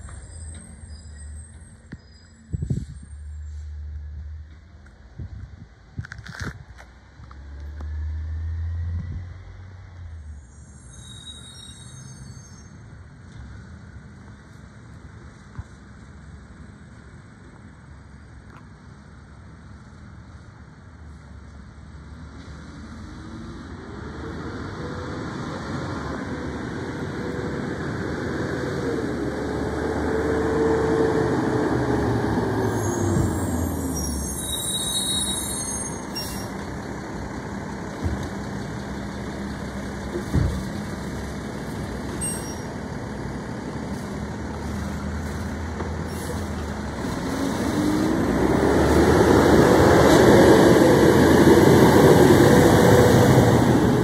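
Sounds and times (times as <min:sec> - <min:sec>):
truck engine revving: 0:42.9 - 0:54.0.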